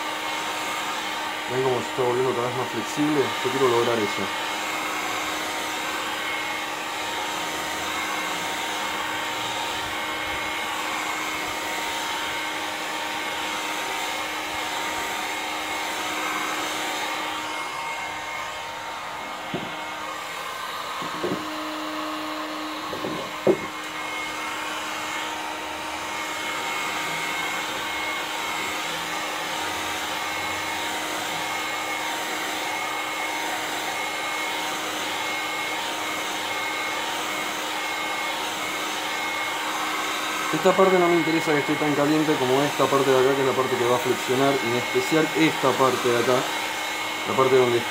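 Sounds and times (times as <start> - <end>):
heat gun blowing: 0.0 - 47.9
short knocks: 22.9 - 23.7.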